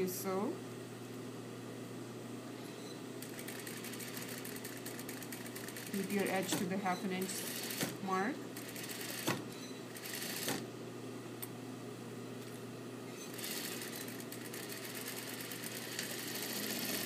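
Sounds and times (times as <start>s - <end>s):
steady low hum: 0.0s - 17.0s
sewing machine stitching: 3.2s - 8.0s, 8.6s - 9.4s, 10.0s - 10.6s, 13.2s - 17.0s.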